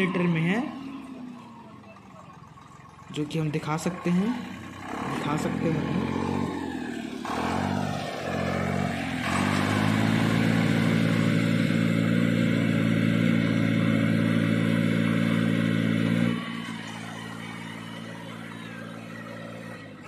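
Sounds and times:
tractor engine droning: 0.0s - 20.0s.

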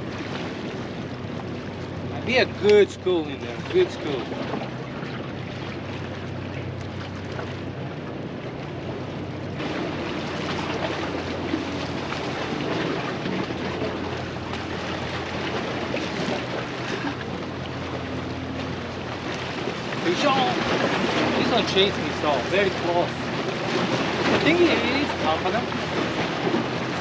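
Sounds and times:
boat motor hum: 0.0s - 27.0s
waves washing against rocks: 9.6s - 27.0s.

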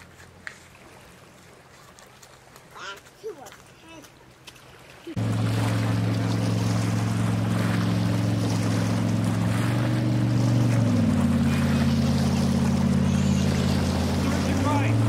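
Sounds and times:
water rushing: 0.0s - 15.0s
motorboat engine running: 5.0s - 15.0s.

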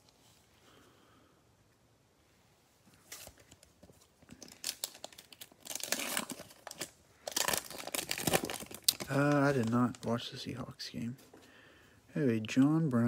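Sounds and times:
plastic wrapper tearing and crinkling: 4.2s - 10.3s.

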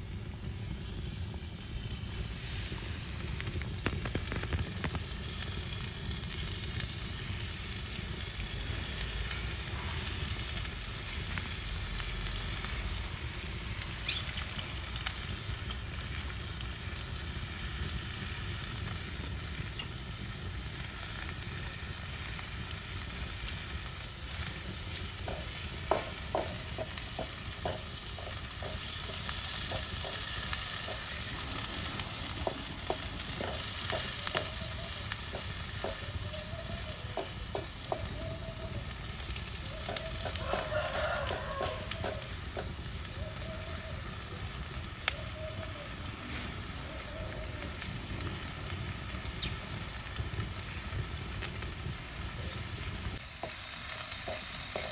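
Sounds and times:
vegetables sizzling in oil: 0.0s - 54.9s
oil popping: 1.8s - 9.8s, 24.2s - 43.6s.

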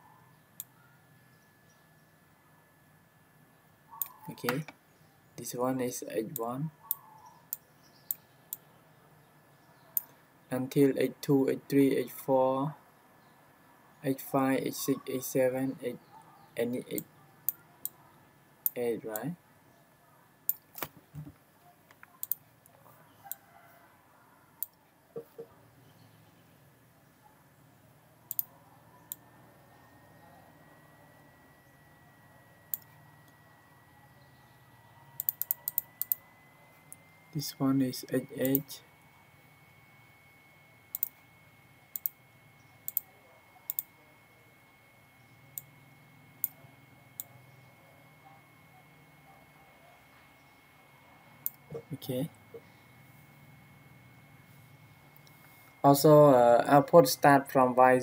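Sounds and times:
mouse button clicking: 4.0s - 4.7s
computer mouse clicking: 21.9s - 22.4s, 28.3s - 28.5s, 35.2s - 36.2s, 38.4s - 38.7s, 40.9s - 41.2s, 41.9s - 42.2s, 42.8s - 43.1s, 43.7s - 43.9s.

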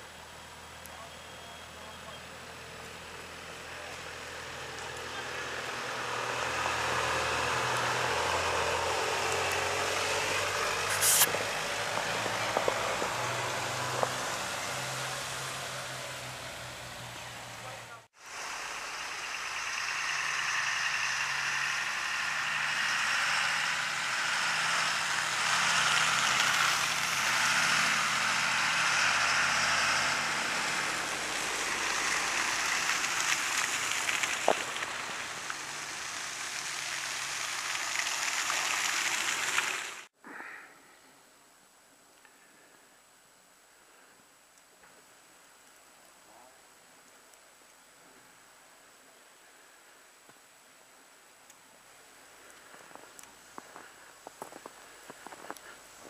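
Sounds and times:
tyres hissing through wet snow: 0.0s - 40.2s, 51.5s - 56.0s
faint steady hiss: 30.8s - 56.0s.

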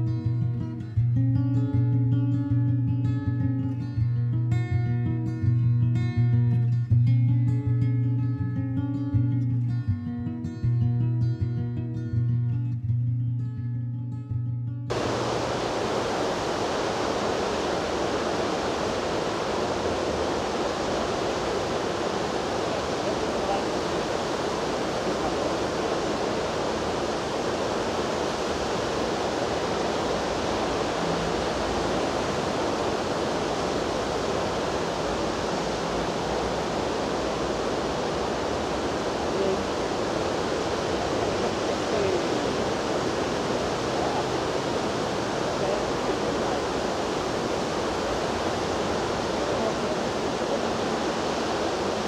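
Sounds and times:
river water rushing over riffle: 14.9s - 52.0s.

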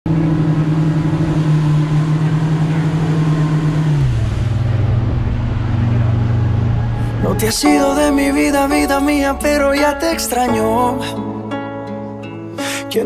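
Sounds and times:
outboard motors at speed: 0.1s - 7.6s.

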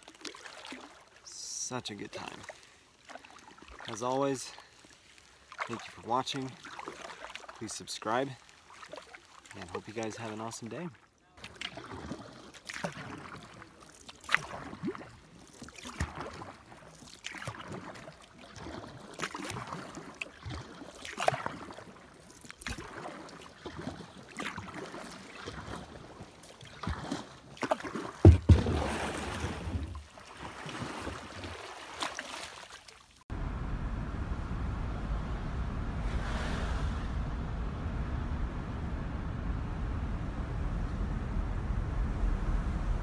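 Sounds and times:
paddle strokes splashing: 0.0s - 33.2s
water lapping against hull: 0.0s - 33.2s
kayak scraping ashore: 11.4s - 33.0s, 35.2s - 43.0s.

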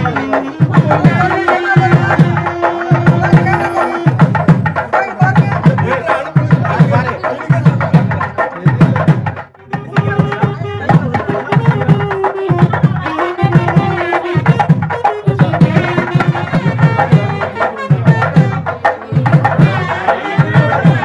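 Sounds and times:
fast steady drum rhythm: 0.0s - 21.0s.

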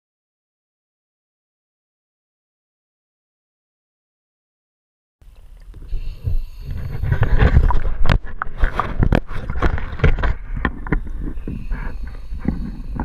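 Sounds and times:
wind rumble on microphone: 5.4s - 13.0s
water sloshing and splashing: 6.7s - 13.0s.

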